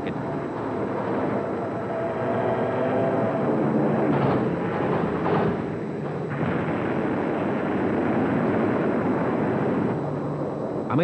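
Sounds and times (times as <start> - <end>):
explosions: 3.9 - 11.0.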